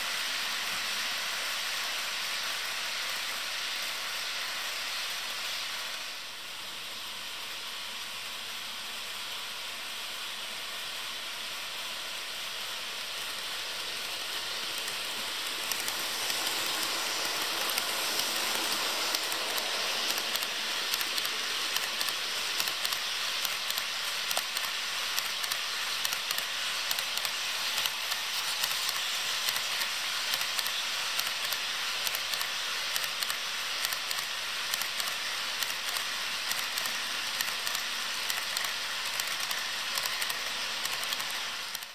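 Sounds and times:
model train wheels hissing on rail: 0.0s - 41.9s
wheels clicking over rail joints: 13.1s - 41.9s.

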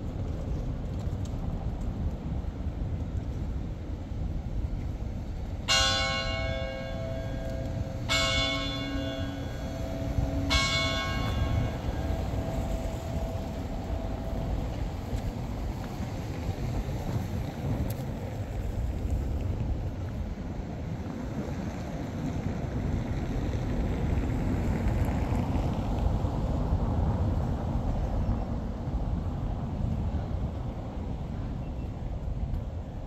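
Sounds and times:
tower bell clanging: 5.7s - 15.0s.

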